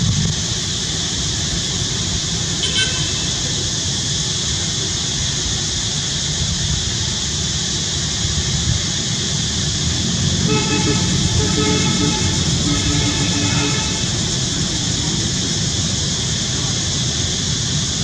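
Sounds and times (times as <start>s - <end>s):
rumbling outdoor background noise: 0.0s - 18.0s.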